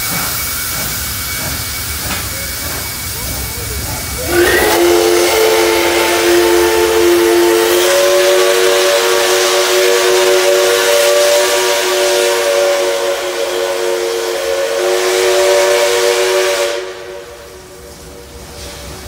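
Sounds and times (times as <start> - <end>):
steam hiss: 0.0 - 19.0
steam locomotive chime whistle: 4.2 - 17.8.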